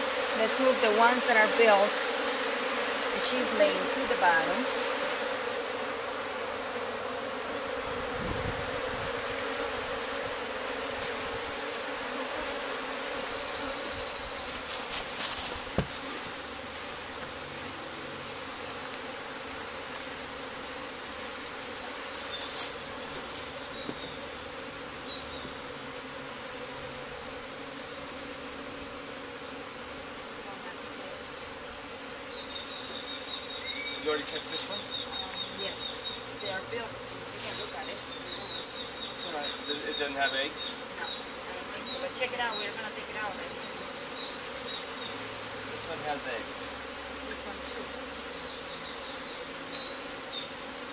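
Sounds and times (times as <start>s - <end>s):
honey bees buzzing: 0.0s - 50.9s.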